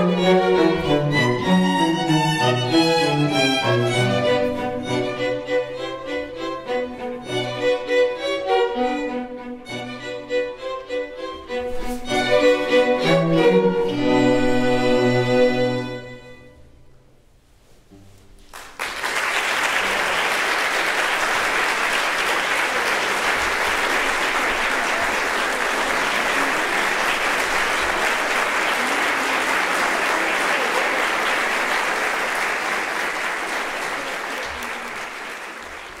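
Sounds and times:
audience applauding: 0:18.4 - 0:36.0.

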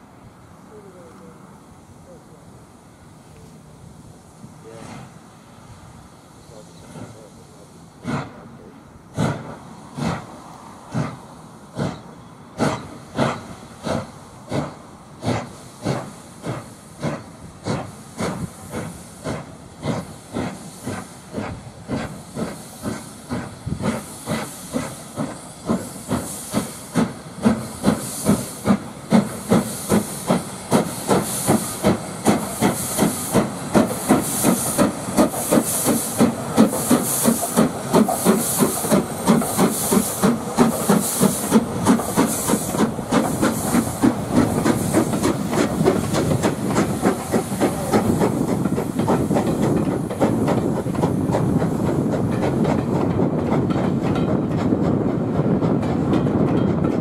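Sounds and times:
steam hissing: 0:00.0 - 0:57.0
train coaches rumbling and clattering: 0:00.0 - 0:57.0
steam locomotive exhaust beats: 0:03.1 - 0:57.0.

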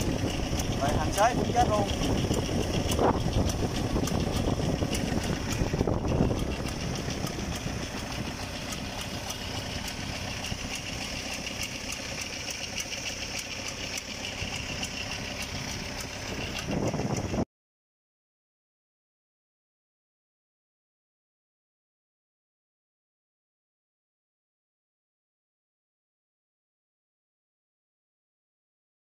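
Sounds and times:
diesel tractor engine running: 0:00.0 - 0:17.5.

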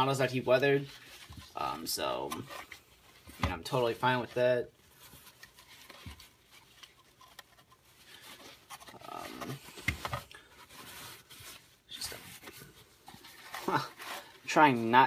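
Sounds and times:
paper towel rustling: 0:00.0 - 0:15.0.

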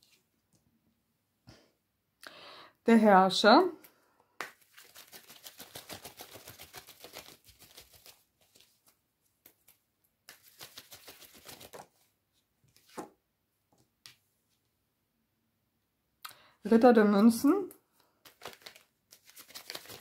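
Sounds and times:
cards being shuffled: 0:04.4 - 0:12.1, 0:12.7 - 0:13.2, 0:18.2 - 0:20.0.

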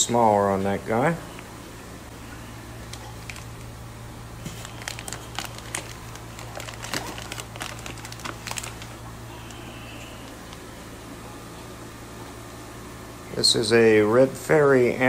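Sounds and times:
steady low hum: 0:00.0 - 0:15.0
plastic bags crinkling: 0:02.7 - 0:09.3.

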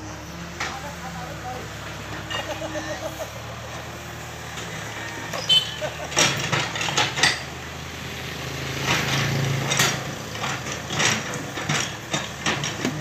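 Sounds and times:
excavator diesel engine running: 0:00.0 - 0:13.0
sharp knocks and scrapes: 0:06.1 - 0:07.6.

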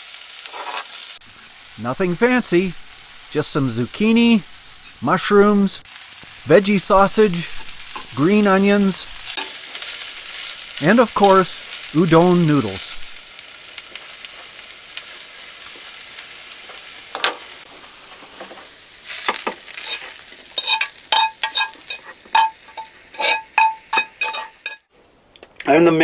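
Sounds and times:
noodles sizzling in a skillet: 0:00.0 - 0:24.9
metal utensil scraping skillet: 0:00.4 - 0:01.0, 0:19.8 - 0:24.9.

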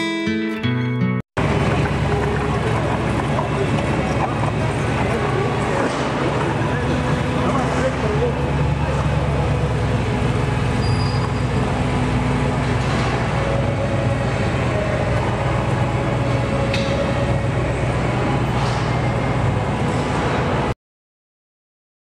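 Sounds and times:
low hall rumble: 0:01.4 - 0:20.7
faint voices: 0:01.6 - 0:10.4.

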